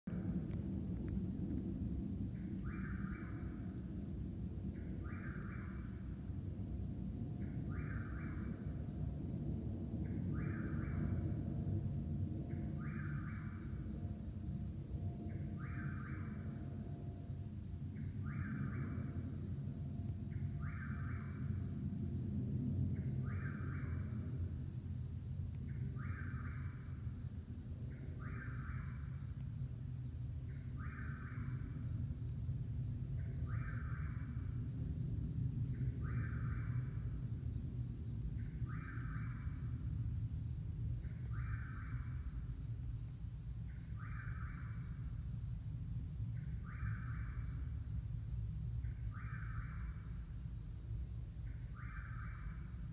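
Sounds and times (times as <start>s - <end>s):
jet engines rumbling: 0.1s - 5.1s
buzzy insect call: 0.1s - 52.9s
cricket trill: 0.1s - 52.9s.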